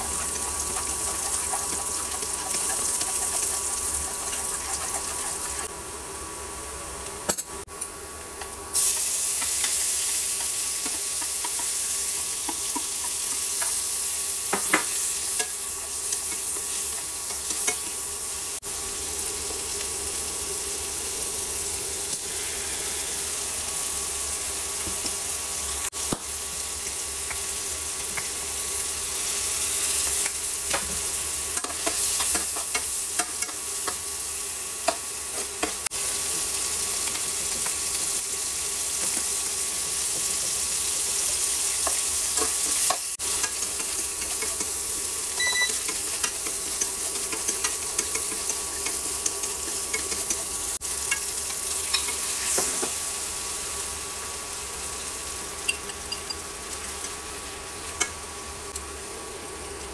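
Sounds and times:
utensil scraping pan: 0:00.0 - 0:05.7
seafood sizzling in wok: 0:00.0 - 0:59.9.

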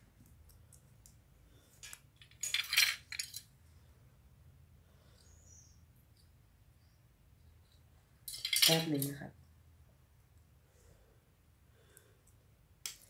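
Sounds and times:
plastic parts clattering on table: 0:01.8 - 0:03.5, 0:08.3 - 0:09.2.

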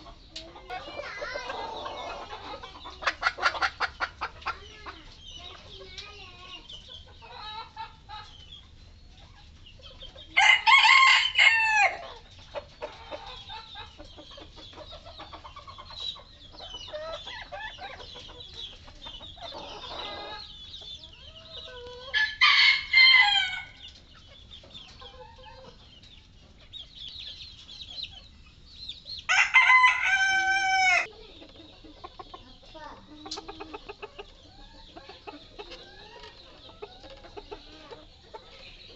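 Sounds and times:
chickens clucking: 0:00.0 - 0:38.9
rooster crowing: 0:10.4 - 0:12.0, 0:22.2 - 0:23.8, 0:29.3 - 0:31.1.

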